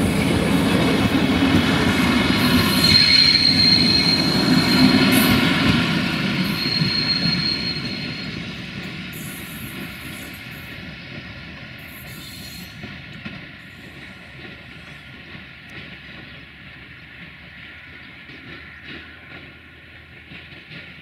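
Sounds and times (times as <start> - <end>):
train wheels rolling on rails: 0.0 - 21.0
high wheel squeal: 1.9 - 10.8, 11.8 - 12.9.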